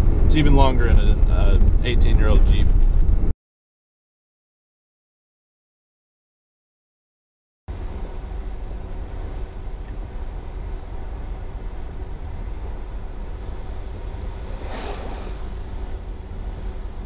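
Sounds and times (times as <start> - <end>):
road and wind noise: 0.0 - 3.3, 7.7 - 17.0
passing car swish: 13.4 - 17.0.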